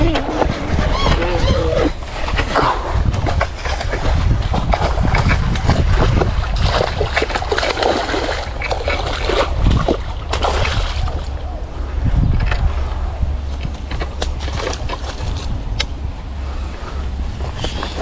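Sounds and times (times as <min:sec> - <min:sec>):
wind buffeting microphone: 0:00.0 - 0:18.0
fish splashing at water surface: 0:02.8 - 0:11.4.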